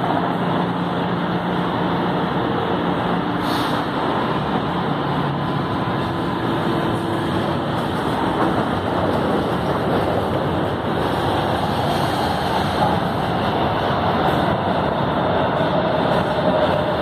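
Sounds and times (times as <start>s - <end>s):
train equipment running: 0.0s - 17.0s
train doors closing: 3.0s - 4.4s, 5.3s - 17.0s.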